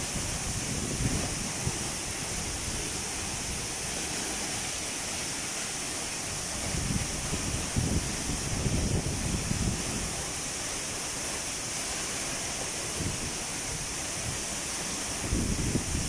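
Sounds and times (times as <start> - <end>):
wind buffeting microphone: 0.0 - 4.2, 6.2 - 10.3, 15.1 - 16.0
waterfall rushing: 0.0 - 16.0.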